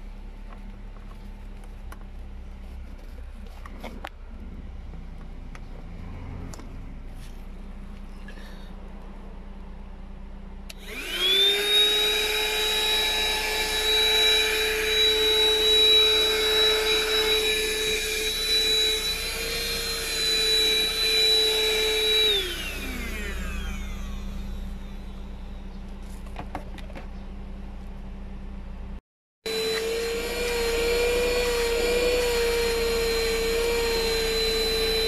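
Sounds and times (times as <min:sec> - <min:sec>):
vacuum cleaner motor whining: 0:10.7 - 0:25.6, 0:29.5 - 0:35.0.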